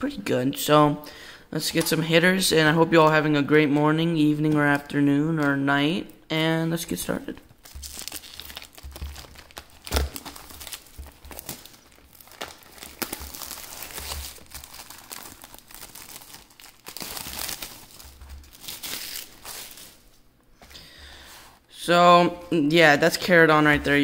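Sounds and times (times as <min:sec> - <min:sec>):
plastic shrink-wrap crinkling: 0:06.8 - 0:20.3.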